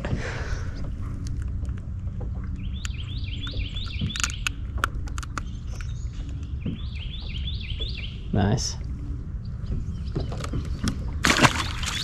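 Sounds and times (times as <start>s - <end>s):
bird calling rising notes: 2.5s - 12.0s.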